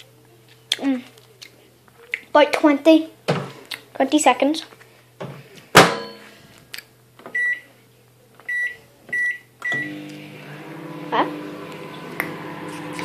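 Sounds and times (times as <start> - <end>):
microwave keypad beeping: 8.5 - 10.0
microwave running hum: 8.5 - 13.0.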